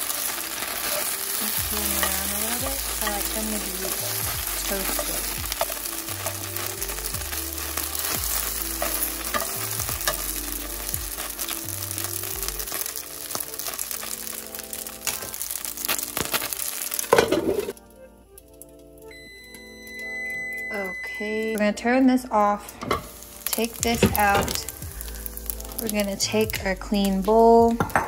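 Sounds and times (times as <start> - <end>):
dumplings sizzling in hot oil: 0.0 - 17.8, 22.6 - 28.0
tongs clicking: 0.8 - 11.5.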